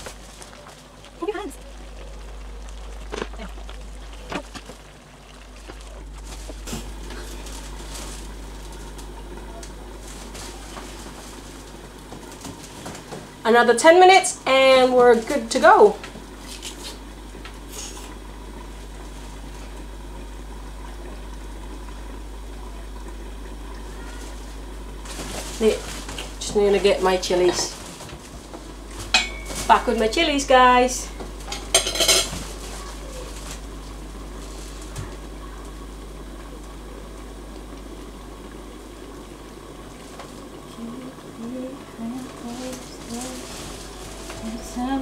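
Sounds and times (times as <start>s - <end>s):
stew bubbling in a pan: 0.0s - 43.1s
stew simmering hiss: 15.6s - 27.8s.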